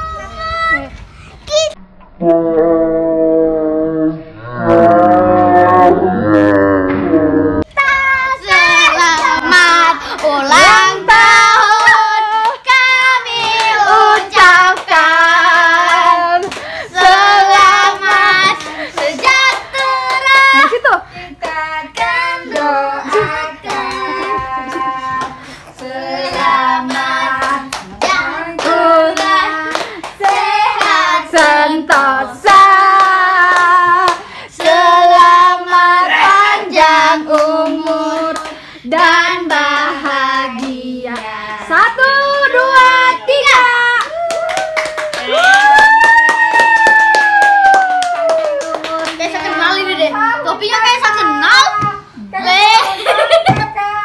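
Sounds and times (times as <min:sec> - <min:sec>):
group singing with children: 0:02.2 - 0:43.9
people clapping: 0:08.4 - 0:12.6, 0:13.2 - 0:15.2, 0:15.8 - 0:17.2, 0:17.8 - 0:20.8, 0:21.4 - 0:41.8, 0:42.8 - 0:50.0.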